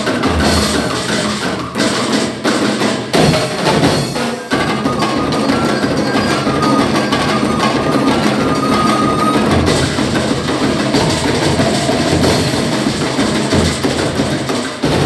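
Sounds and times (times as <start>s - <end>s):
held high tone: 0.0s - 1.8s, 4.6s - 10.1s
wood-block knocks: 0.0s - 2.2s
tribal drum ensemble: 0.0s - 15.0s.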